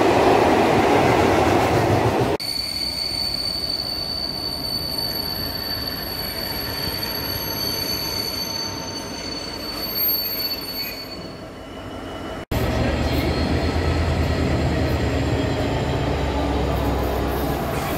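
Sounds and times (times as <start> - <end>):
freight train rolling: 0.0 - 17.9
high-pitched wheel squeal: 2.4 - 12.4.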